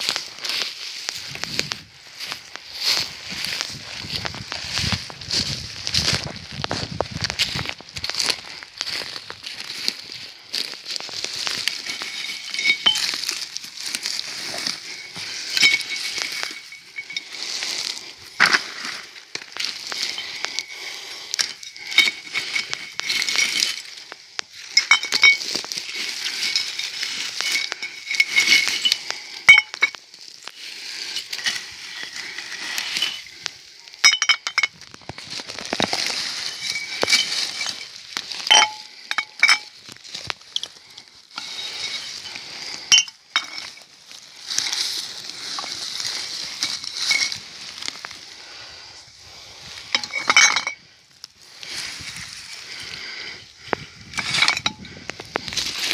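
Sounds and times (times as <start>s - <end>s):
rustling twigs and undergrowth: 0.0s - 55.9s
glass bottles clinking: 11.6s - 17.6s, 19.9s - 24.0s, 24.6s - 30.0s, 32.8s - 43.9s, 46.6s - 47.4s, 49.9s - 50.8s, 54.2s - 55.0s.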